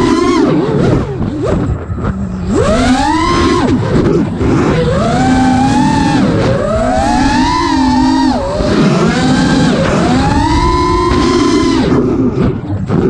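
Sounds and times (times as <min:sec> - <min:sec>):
quadcopter motor whine: 0:00.0 - 0:13.0.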